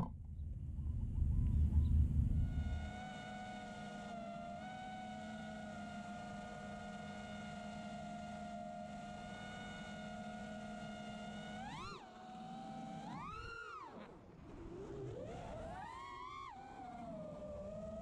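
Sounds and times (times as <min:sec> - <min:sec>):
drone propellers whining: 0:11.5 - 0:18.0.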